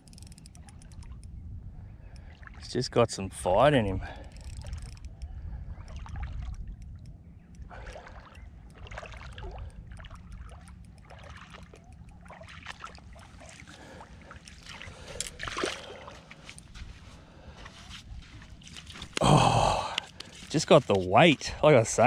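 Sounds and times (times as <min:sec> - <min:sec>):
low wind rumble: 0:00.0 - 0:22.0
splashing in shallow water: 0:07.7 - 0:21.1.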